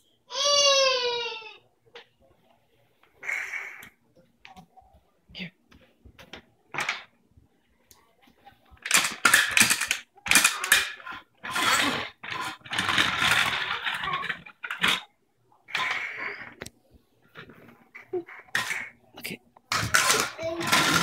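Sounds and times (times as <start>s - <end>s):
toy tractor rattling on floor: 8.8s - 15.1s, 19.7s - 21.0s.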